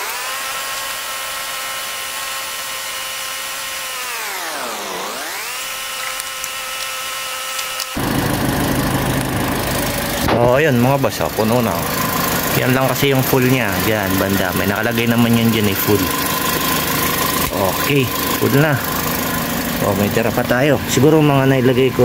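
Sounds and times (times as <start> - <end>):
machine-like whine: 3.5 - 22.0
broad rushing noise: 8.0 - 14.7.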